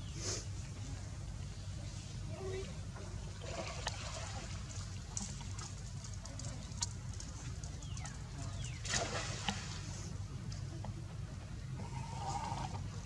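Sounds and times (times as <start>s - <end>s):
water lapping and splashing: 3.0s - 10.2s.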